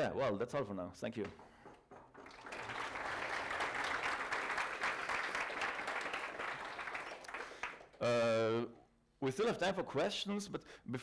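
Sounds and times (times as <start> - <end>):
audience applauding: 1.8 - 8.0.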